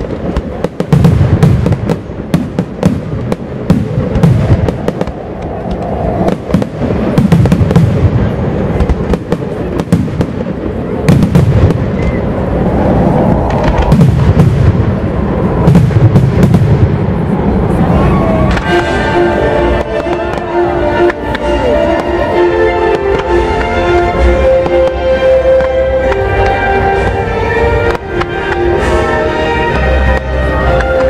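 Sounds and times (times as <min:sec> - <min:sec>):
continuous low rumble: 0:00.0 - 0:31.0
fireworks bursting with loud bangs: 0:00.0 - 0:31.0.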